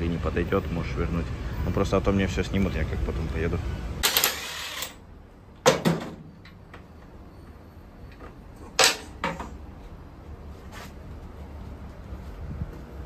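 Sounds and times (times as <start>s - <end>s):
tools and metal parts clanking: 8.1s - 9.6s.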